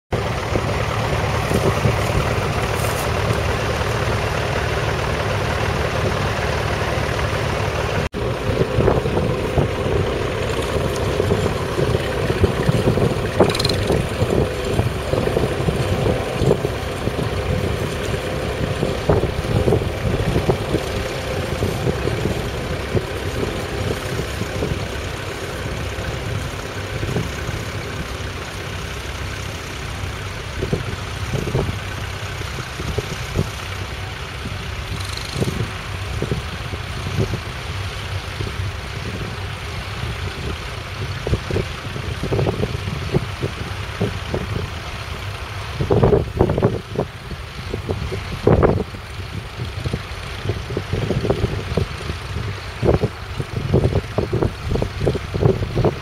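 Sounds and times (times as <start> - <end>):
tractor diesel engine under load: 0.1 - 56.0
clicks and rattles: 12.7 - 14.1.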